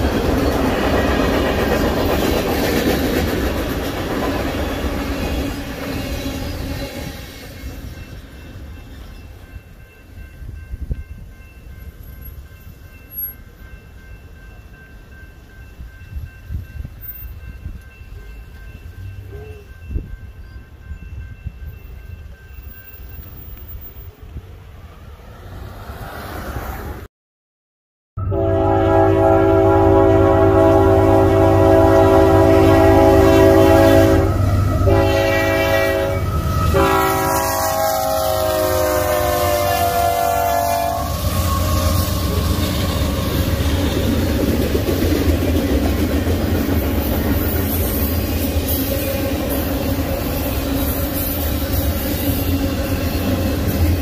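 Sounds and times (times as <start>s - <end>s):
freight train rumbling past: 0.0s - 27.1s, 28.2s - 54.0s
crossing bell ringing: 7.2s - 24.2s, 28.2s - 54.0s.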